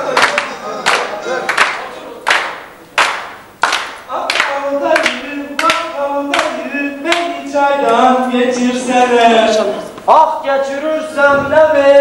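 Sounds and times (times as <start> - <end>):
men clapping in unison: 0.0 - 7.3
men singing together: 4.1 - 12.0.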